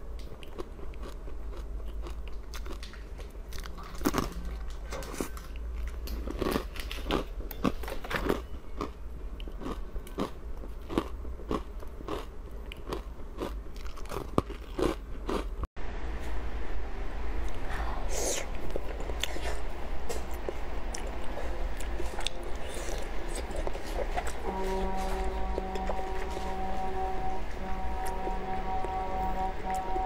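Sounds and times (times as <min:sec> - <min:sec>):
ice crunching between teeth: 0:00.3 - 0:15.6.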